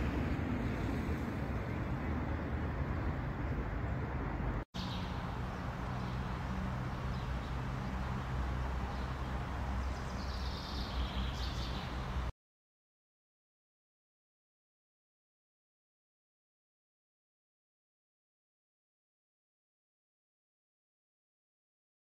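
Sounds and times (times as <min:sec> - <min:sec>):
road traffic rumble: 0:00.0 - 0:12.3
bird chirps: 0:09.8 - 0:12.1.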